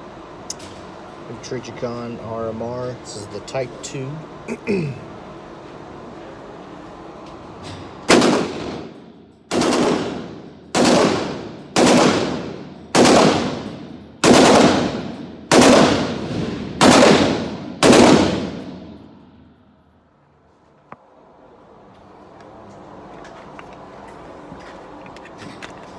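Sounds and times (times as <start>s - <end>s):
pistol shots ringing indoors: 8.0s - 19.6s.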